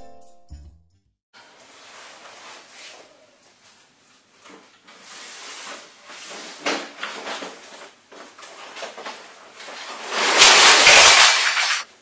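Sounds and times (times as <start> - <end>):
cardboard box scraping on wooden floor: 4.9 - 7.5, 9.6 - 10.9.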